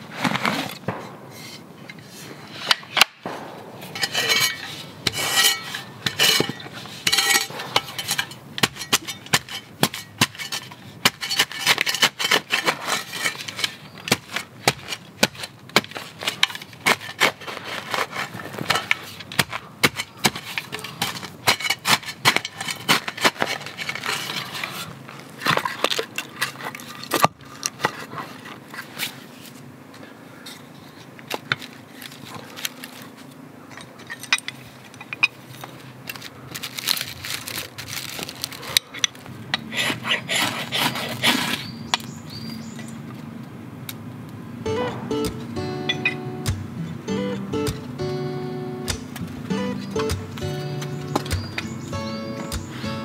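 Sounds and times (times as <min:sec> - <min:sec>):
shovel scraping: 0:00.0 - 0:29.6, 0:35.8 - 0:42.2, 0:44.6 - 0:53.0
shovel chopping into soil: 0:02.7 - 0:24.8, 0:44.7 - 0:48.2, 0:48.8 - 0:53.0.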